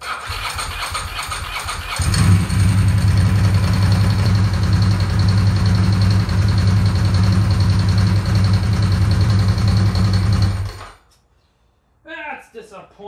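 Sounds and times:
motorcycle engine idling: 0.2 - 10.8.

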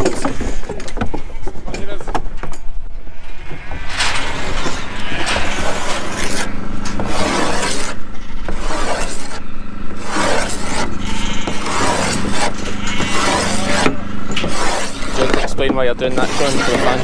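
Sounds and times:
rasping scrapes on plywood: 4.5 - 17.0.

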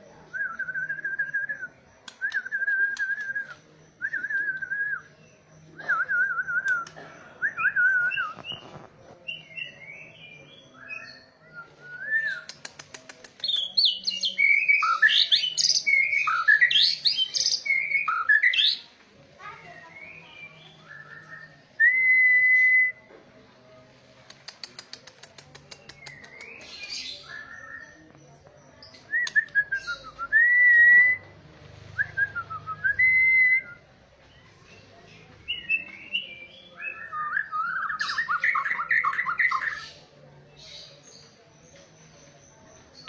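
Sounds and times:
bird fast dry ticks: 12.5 - 13.7, 24.2 - 26.8.

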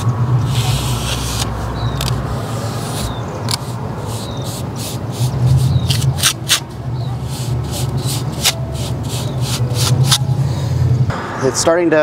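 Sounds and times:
trowel scraping mortar: 0.4 - 10.2
low hum: 8.6 - 12.0.

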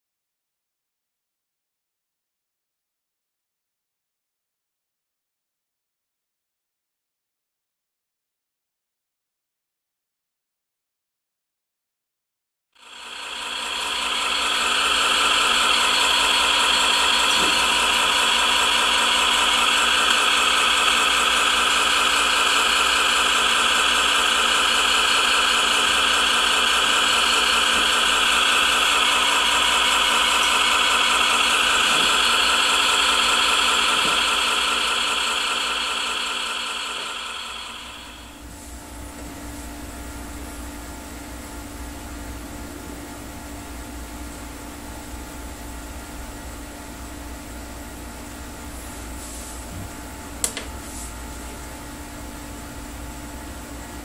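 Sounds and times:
simulated diesel engine idling: 12.8 - 38.4.

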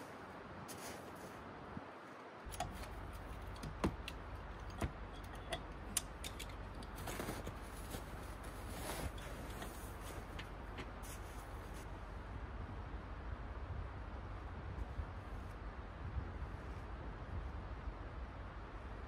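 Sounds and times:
footsteps crunching in snow: 0.0 - 1.5, 6.9 - 11.9
low steady rumble: 2.4 - 19.0
metallic clinks of hardware: 2.5 - 6.8.

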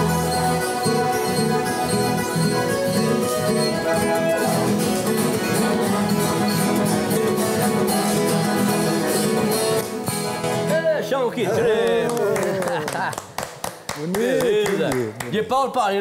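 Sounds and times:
held instrument notes: 0.0 - 10.4
folk guitar picked and strummed: 0.0 - 11.8.

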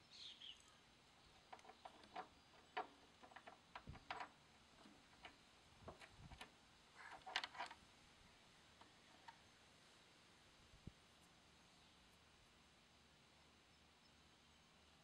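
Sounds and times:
clicks of small parts handled: 1.5 - 7.8.

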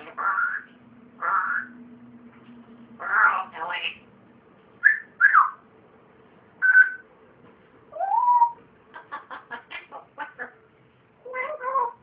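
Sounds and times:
parrot whistling: 0.1 - 1.7, 4.8 - 5.6, 6.6 - 7.0, 7.9 - 8.6.

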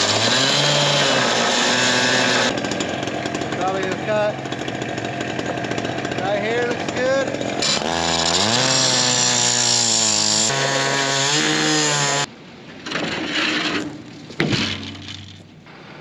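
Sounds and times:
cut-off saw cutting metal: 0.0 - 12.3
scraping noise: 12.9 - 16.0.

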